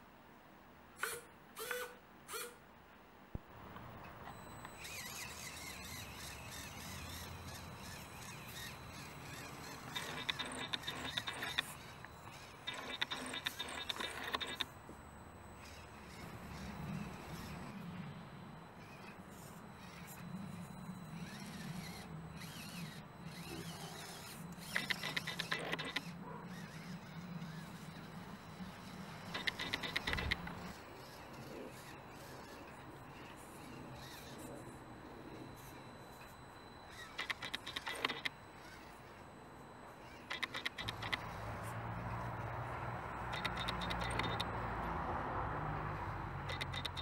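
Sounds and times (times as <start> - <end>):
small electric motor humming: 1.0 - 2.6, 4.3 - 47.0
rapid clicking and rattling: 6.5 - 14.7, 24.0 - 26.1, 29.2 - 30.8, 40.3 - 41.4, 43.3 - 44.5, 46.4 - 47.0.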